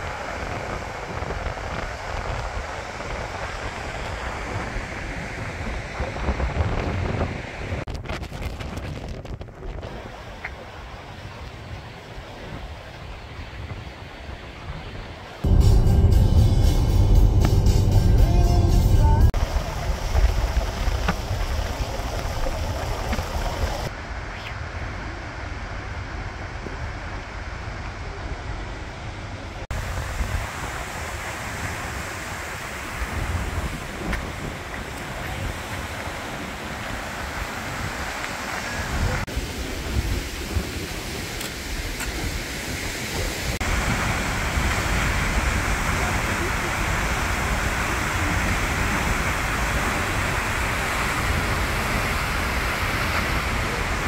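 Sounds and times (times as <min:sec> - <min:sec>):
wind buffeting microphone: 0:00.0 - 0:23.9, 0:29.5 - 0:54.0
deep rumble: 0:15.4 - 0:23.9
waterfall roaring: 0:17.2 - 0:24.2, 0:25.3 - 0:54.0.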